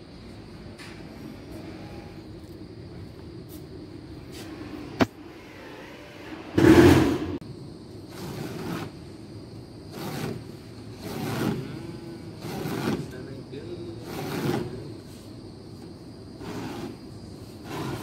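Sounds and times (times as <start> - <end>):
utility knife scraping drywall: 8.1 - 9.0, 9.9 - 13.3, 14.0 - 14.9, 16.4 - 18.0.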